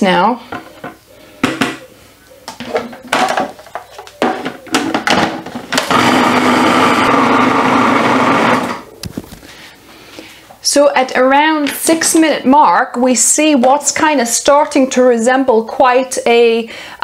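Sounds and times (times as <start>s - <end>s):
food processor motor whirring: 5.7s - 8.9s.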